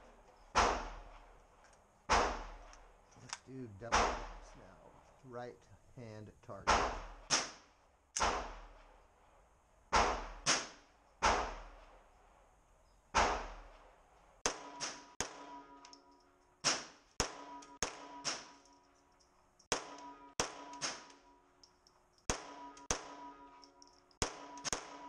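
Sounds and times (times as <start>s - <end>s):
pistol shots with echo: 0.5s - 1.3s, 2.1s - 2.7s, 3.8s - 4.5s, 6.6s - 9.0s, 9.9s - 12.0s, 13.1s - 13.8s, 14.4s - 15.8s, 16.6s - 18.6s, 19.7s - 21.2s, 22.3s - 23.6s, 24.2s - 25.0s.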